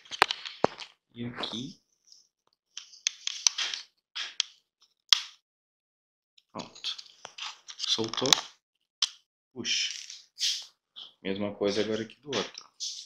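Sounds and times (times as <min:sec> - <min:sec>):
plastic tools scraping: 0:06.6 - 0:09.2.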